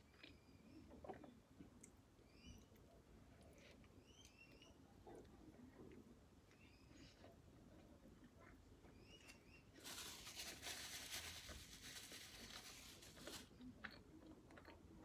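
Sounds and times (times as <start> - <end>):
faint high chirps: 2.2 - 3.0, 3.6 - 4.9, 6.4 - 7.3, 8.8 - 10.1
paper napkin rustling: 9.8 - 13.5.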